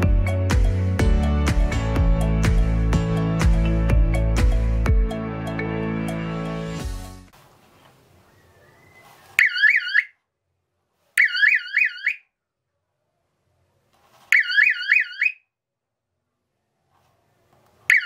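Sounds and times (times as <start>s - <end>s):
warbling electronic siren: 9.4s - 10.2s, 11.2s - 12.2s, 14.3s - 15.4s.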